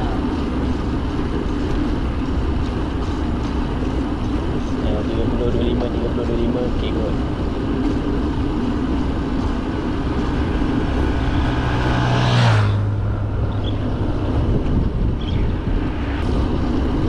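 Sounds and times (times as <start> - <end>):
wind and road rumble: 0.0 - 17.0
vehicle passing: 8.3 - 17.0.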